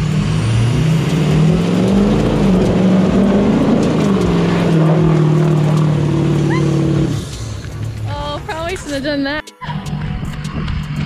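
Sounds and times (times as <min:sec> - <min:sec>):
diesel engine revving hard: 0:00.0 - 0:07.8
tires spinning in mud: 0:00.0 - 0:08.2.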